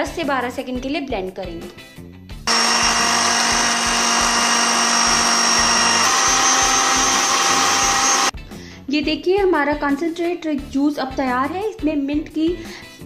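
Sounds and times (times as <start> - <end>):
blender motor whining: 2.5 - 8.4.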